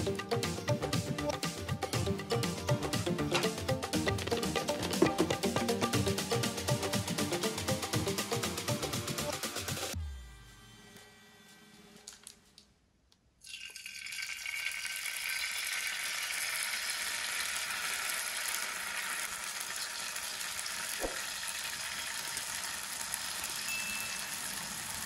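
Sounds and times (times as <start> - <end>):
batter sizzling in hot oil: 13.5 - 25.0.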